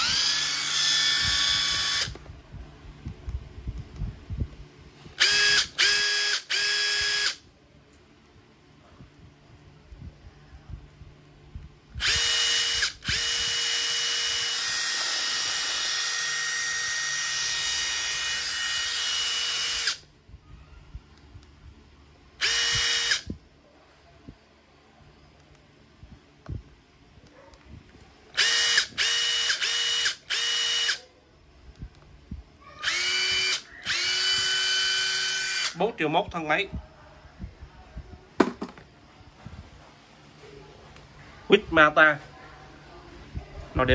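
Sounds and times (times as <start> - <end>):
impact driver motor whining: 0.0 - 2.2, 5.2 - 7.4, 12.0 - 20.0, 22.4 - 23.3, 28.4 - 31.0, 32.8 - 35.8.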